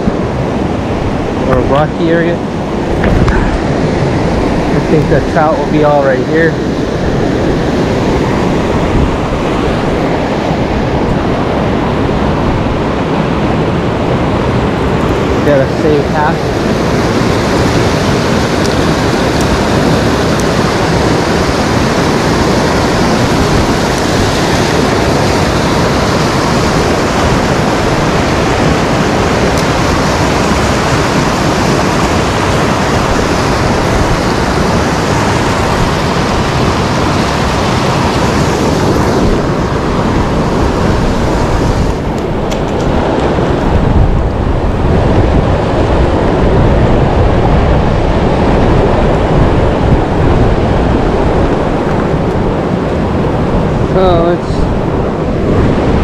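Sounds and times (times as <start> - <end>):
river rushing over boulders: 0.0 - 56.0.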